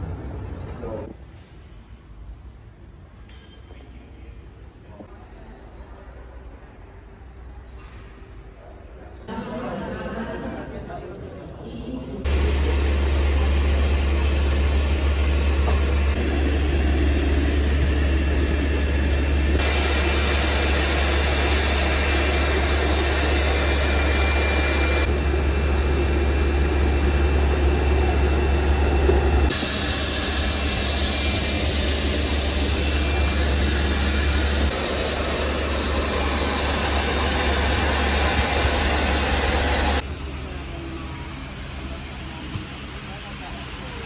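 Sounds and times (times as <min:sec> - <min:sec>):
jet turbine whine and rumble: 0:12.2 - 0:44.0.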